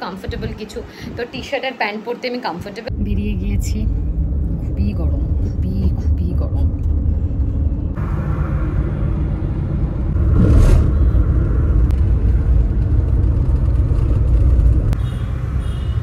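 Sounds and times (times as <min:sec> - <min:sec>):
rush of noise: 0:02.9 - 0:14.9
car engine and tyres rumble: 0:02.9 - 0:16.0.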